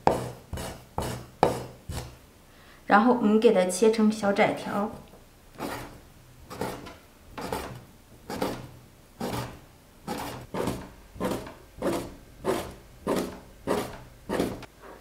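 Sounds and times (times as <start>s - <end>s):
cleaver chopping on wooden board: 0.0s - 2.1s, 10.1s - 14.6s.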